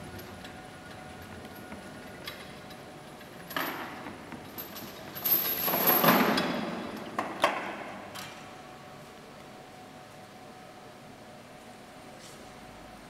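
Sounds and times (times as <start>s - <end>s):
chains and metal limbs rattling: 2.2s - 7.1s.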